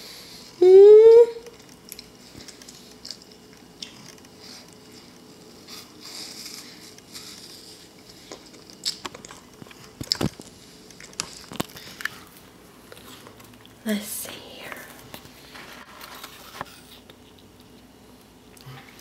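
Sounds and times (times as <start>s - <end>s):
child crunching an apple: 1.5s - 13.8s.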